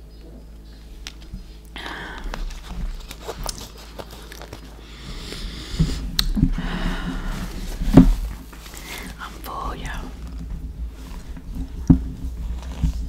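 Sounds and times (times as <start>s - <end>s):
wet chewing with mouth smacks: 1.1s - 4.7s.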